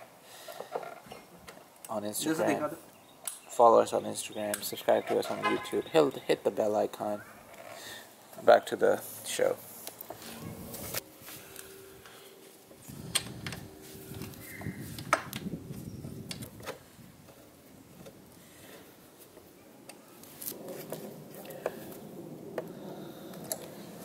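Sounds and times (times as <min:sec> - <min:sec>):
soft rustling: 0:09.0 - 0:13.0.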